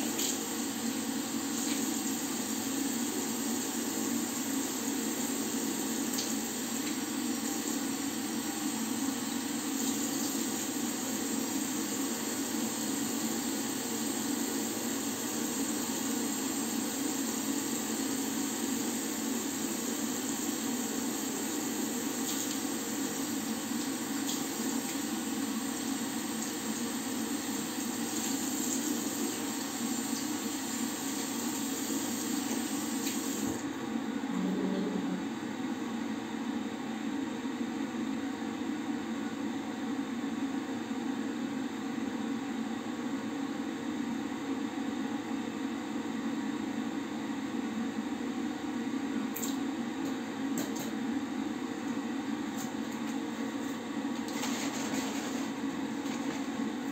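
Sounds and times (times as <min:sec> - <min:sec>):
tap water running into basin: 0:00.0 - 0:08.4, 0:09.2 - 0:13.2, 0:16.5 - 0:33.6.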